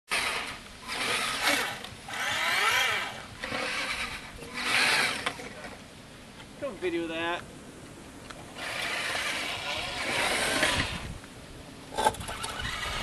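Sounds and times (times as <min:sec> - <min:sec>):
toy buggy motor whining: 0:00.1 - 0:05.4, 0:08.6 - 0:11.0, 0:12.1 - 0:13.0.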